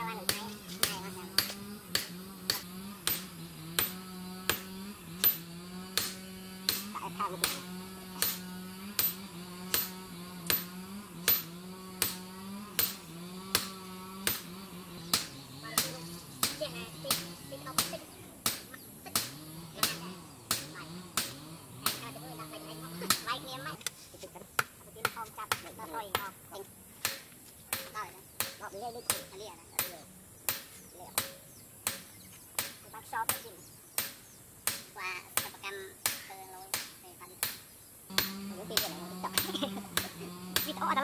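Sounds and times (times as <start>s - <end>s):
hammer striking steel on anvil: 0.3s - 14.5s, 34.0s - 40.8s.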